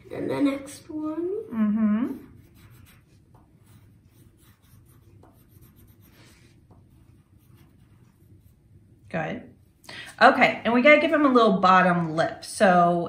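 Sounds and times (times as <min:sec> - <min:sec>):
pencils scratching on paper: 0:02.0 - 0:08.7.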